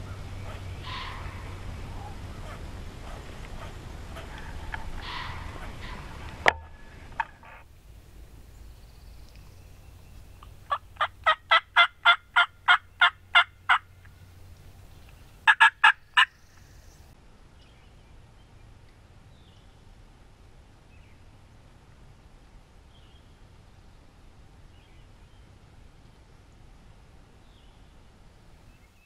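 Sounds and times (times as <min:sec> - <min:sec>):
turkey hen yelping: 0:00.0 - 0:07.6, 0:10.7 - 0:13.9, 0:15.5 - 0:16.3.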